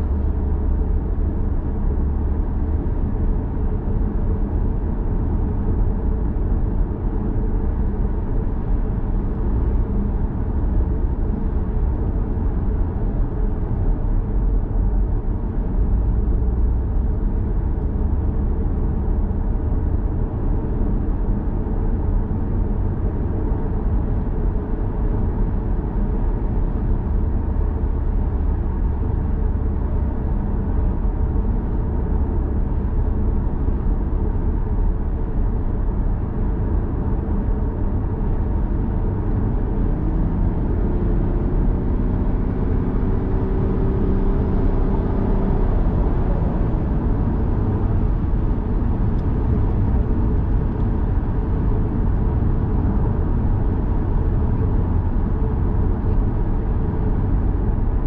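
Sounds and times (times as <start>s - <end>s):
road and tyre noise: 0.0s - 58.0s.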